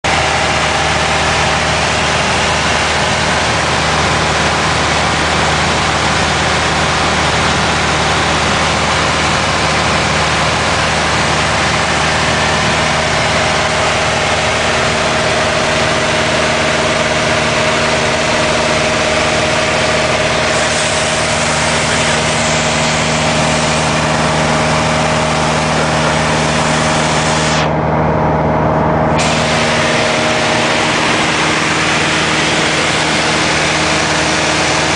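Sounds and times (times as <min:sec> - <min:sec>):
light aircraft engine droning: 0:00.1 - 0:34.9.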